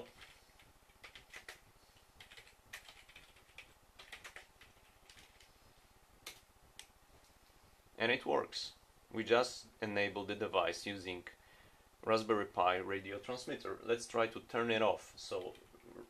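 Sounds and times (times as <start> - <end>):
faint keyboard keystrokes: 2.2 - 5.5.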